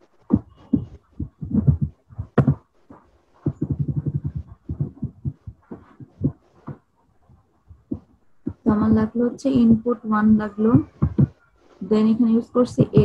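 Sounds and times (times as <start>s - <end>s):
computer keyboard typing: 3.5s - 6.4s.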